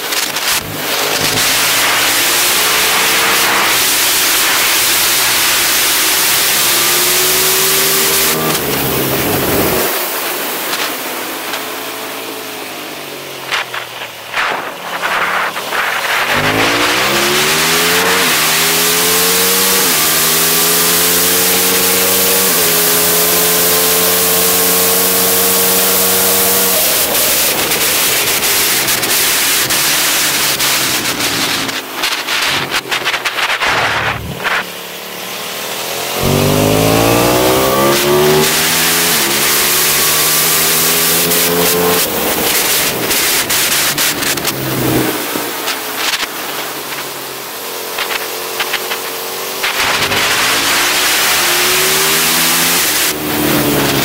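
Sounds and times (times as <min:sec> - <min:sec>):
motorcycle engine accelerating: 0:00.0 - 0:54.0
wind noise: 0:26.5 - 0:34.8.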